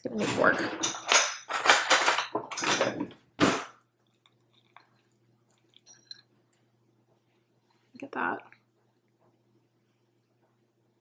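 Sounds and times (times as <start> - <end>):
cutlery rattling in a drawer: 0.2 - 3.6.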